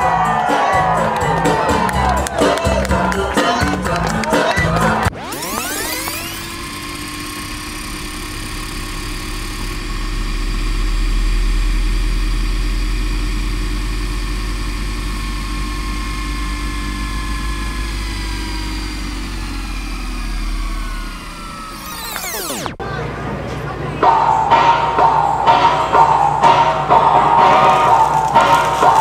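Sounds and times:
mechanical whirring drone: 5.1s - 22.9s
low hum: 5.1s - 29.0s.

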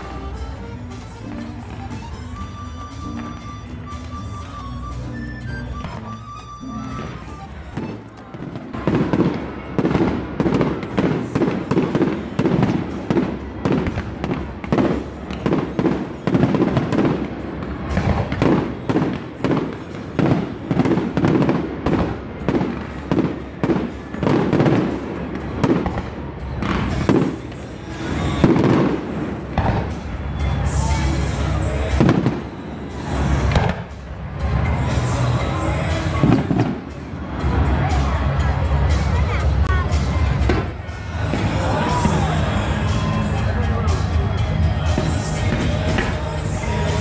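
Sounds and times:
fireworks bangs and pops: 5.8s - 30.7s, 31.6s - 37.5s, 40.2s - 43.0s, 44.8s - 47.0s.

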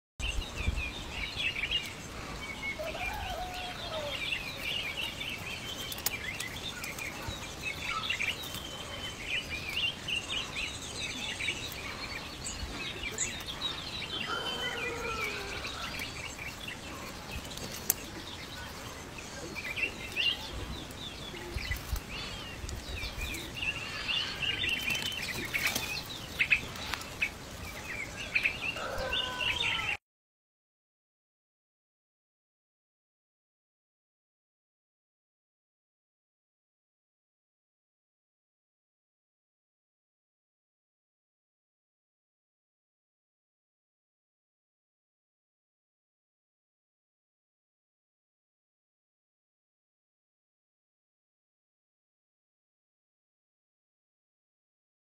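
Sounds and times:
birds chirping: 0.2s - 30.0s.

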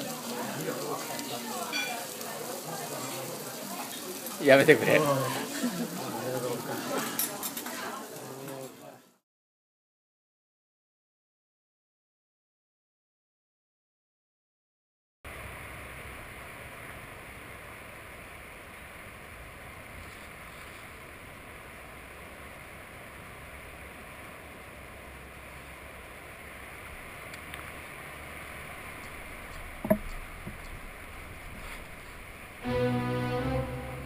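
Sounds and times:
water and wind hissing: 15.4s - 32.6s
bowed string music: 32.6s - 34.0s.

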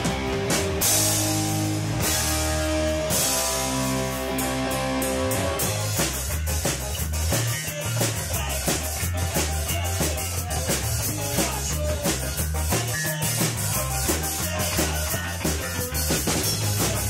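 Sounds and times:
ska band playing live: 0.0s - 17.0s.

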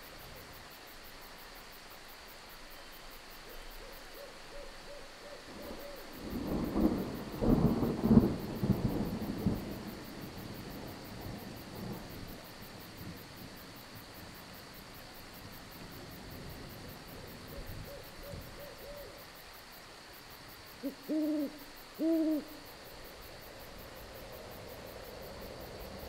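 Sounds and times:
crickets chorus: 0.0s - 26.0s
steady rain: 0.0s - 26.0s
faint owl hoots: 3.4s - 6.8s, 17.1s - 19.3s, 20.8s - 22.8s
thunder rumbling and crackling: 6.2s - 14.2s.

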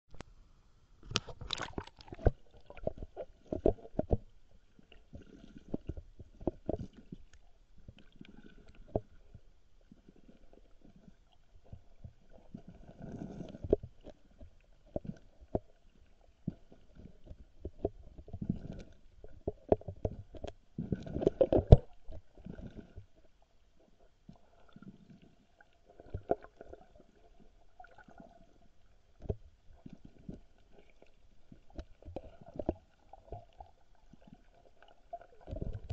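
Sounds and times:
muffled underwater knocks and rumbling: 1.1s - 4.4s, 11.6s - 23.2s, 29.1s - 35.9s.

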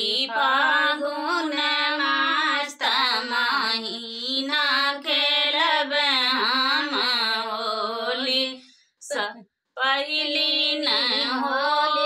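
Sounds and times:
women singing unaccompanied: 0.0s - 12.0s.

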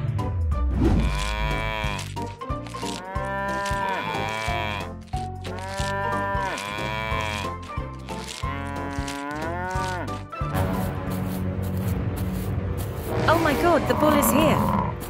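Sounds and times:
cows mooing: 1.0s - 10.2s, 13.8s - 15.0s.

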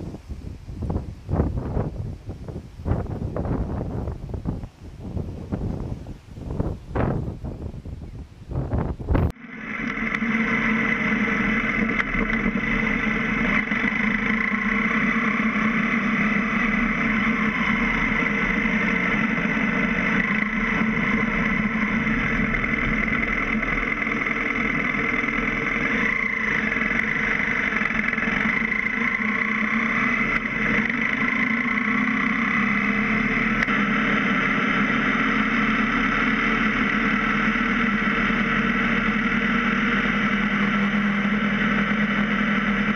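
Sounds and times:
wind noise: 0.0s - 9.4s
motorcycle engine drone: 0.0s - 42.9s
road noise: 0.0s - 42.9s.

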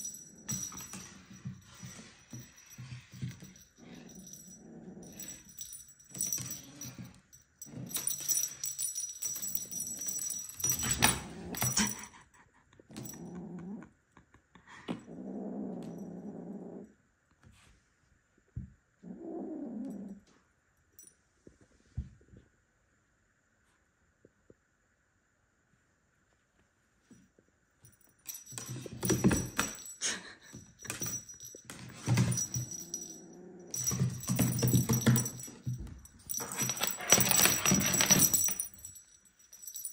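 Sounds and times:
jingle bell toy jingling: 0.0s - 12.2s, 27.9s - 39.9s
kitten growling: 12.8s - 13.9s.

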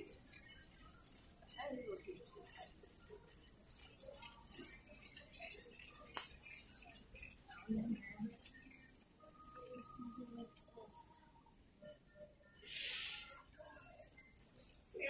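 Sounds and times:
shopping cart rattling on tiles: 0.0s - 11.1s.

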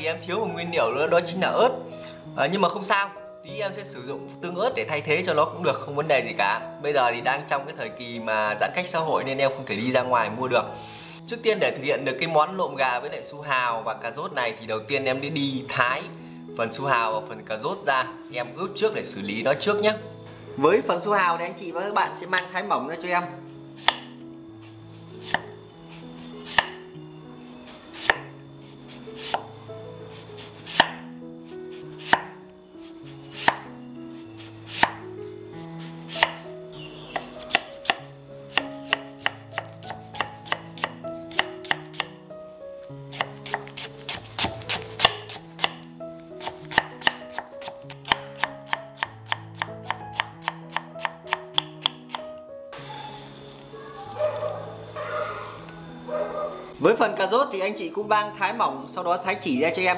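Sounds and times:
knife cutting on wooden board: 23.8s - 26.8s, 28.0s - 28.3s, 28.9s - 29.5s, 30.1s - 31.0s, 31.7s - 32.4s, 33.1s - 35.0s, 35.8s - 36.4s, 37.1s - 42.1s, 43.1s - 45.8s, 46.4s - 52.2s.

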